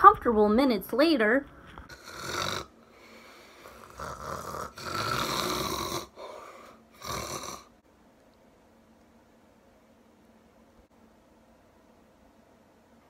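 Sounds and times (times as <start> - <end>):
person snoring: 1.9 - 7.8.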